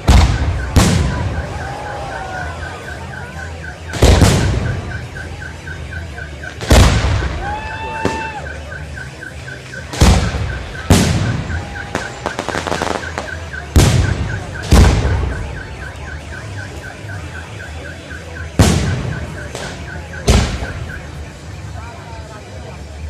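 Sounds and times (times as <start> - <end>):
firework bangs with echo: 0.0 - 2.3, 3.7 - 5.4, 6.5 - 15.9, 18.4 - 21.2
firework crackles: 0.0 - 5.7, 6.4 - 17.1.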